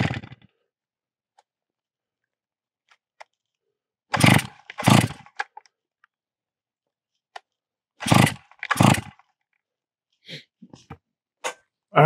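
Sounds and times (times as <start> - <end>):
chainsaw pull-start sputtering: 0.0 - 0.5, 4.1 - 5.6, 8.0 - 9.3.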